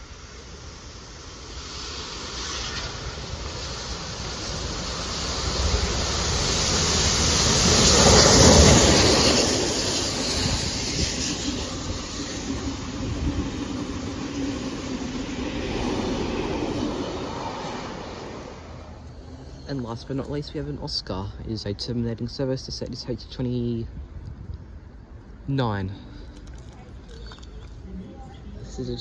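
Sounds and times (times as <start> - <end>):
steam train passing: 0.0 - 21.1
carriages rolling on rails: 4.8 - 20.4.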